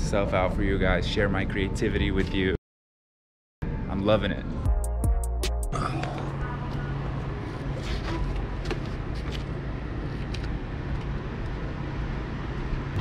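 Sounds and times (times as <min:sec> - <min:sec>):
street traffic hum: 0:00.0 - 0:02.6, 0:05.8 - 0:13.0.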